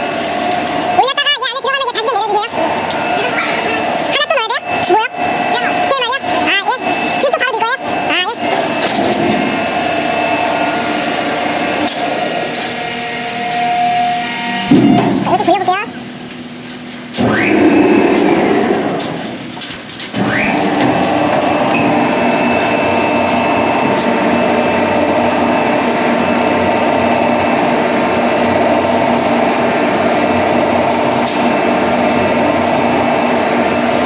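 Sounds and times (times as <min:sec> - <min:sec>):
feed mixer motor whining: 0:17.2 - 0:19.4, 0:20.2 - 0:34.0.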